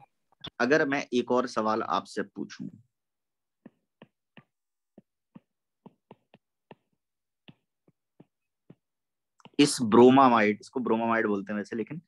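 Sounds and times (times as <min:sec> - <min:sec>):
stylus tapping glass screen: 0:03.4 - 0:10.0.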